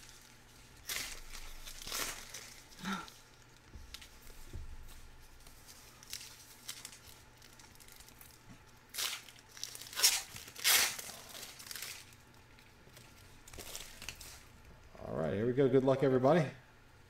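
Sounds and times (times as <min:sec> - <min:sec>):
foil wrapper tearing: 0:00.0 - 0:04.2, 0:05.2 - 0:14.6
foil wrapper crinkling: 0:00.0 - 0:14.7.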